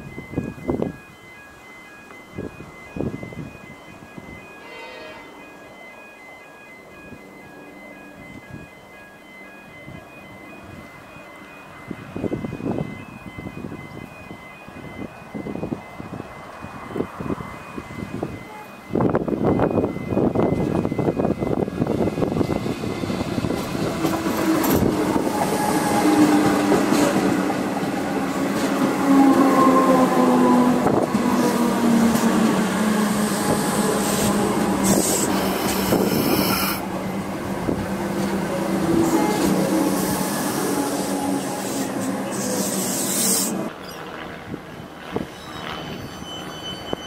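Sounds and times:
steady train hum: 0:00.0 - 0:47.0
train wheels rumbling on rails: 0:09.8 - 0:47.0
high-pitched wheel squeal: 0:34.0 - 0:36.8, 0:39.0 - 0:44.1, 0:45.2 - 0:47.0.

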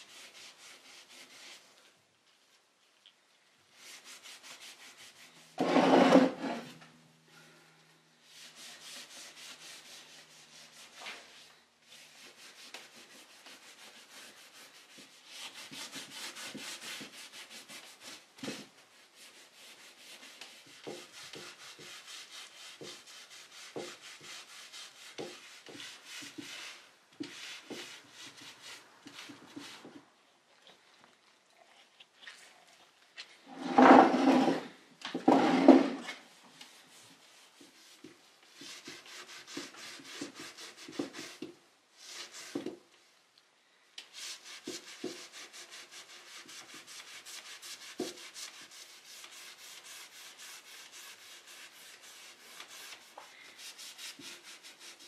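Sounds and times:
cloth rubbing on wood: 0:03.7 - 0:06.7, 0:08.2 - 0:29.9, 0:35.3 - 0:42.6, 0:44.1 - 0:55.0.

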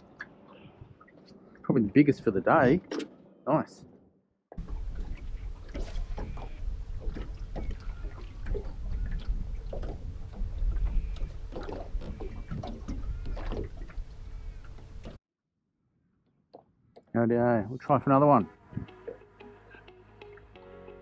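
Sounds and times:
water slapping boat hull: 0:04.5 - 0:15.2
wind buffeting microphone: 0:04.6 - 0:15.2.

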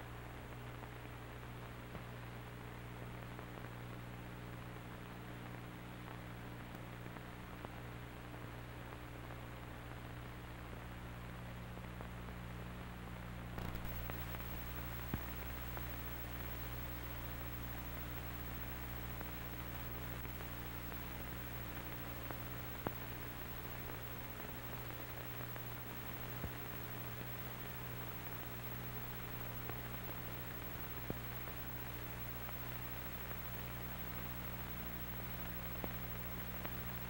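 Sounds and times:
film soundtrack hiss: 0:00.0 - 0:37.0
low mains hum: 0:00.0 - 0:37.0
faint clicks: 0:13.6 - 0:37.0.

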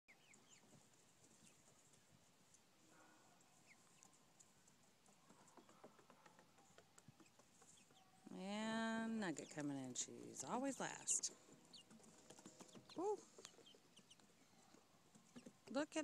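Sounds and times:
chickens pecking on wooden deck: 0:03.9 - 0:08.4, 0:11.4 - 0:15.7.

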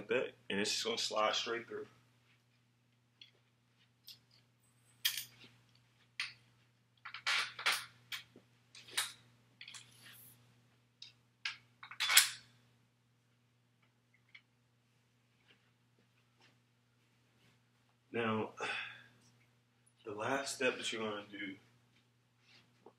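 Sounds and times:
metal hardware clinking: 0:05.0 - 0:05.5.

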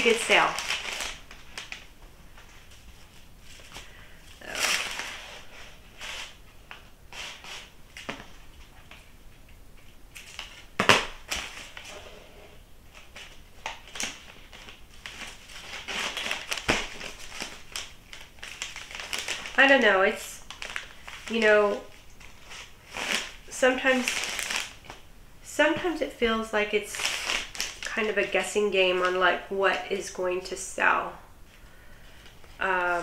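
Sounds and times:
material rustling and crinkling: 0:00.0 - 0:25.1, 0:25.7 - 0:29.2.

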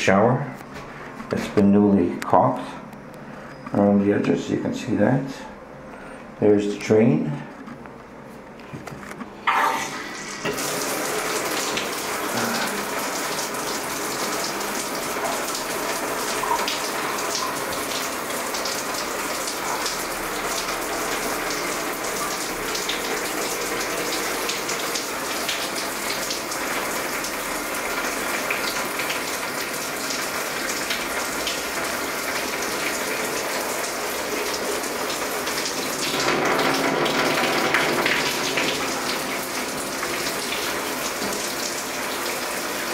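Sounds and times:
shower water spraying on tiles: 0:09.9 - 0:42.9.

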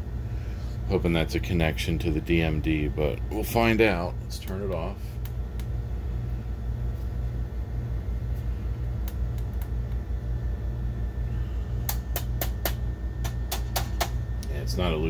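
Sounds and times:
projector fan hum: 0:00.0 - 0:15.0.

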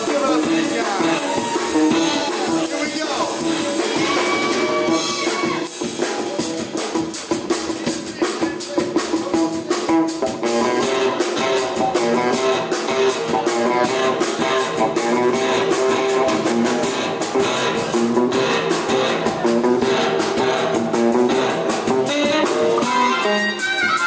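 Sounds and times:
drum kit: 0:00.0 - 0:24.0
electric guitars strumming: 0:00.0 - 0:24.0.

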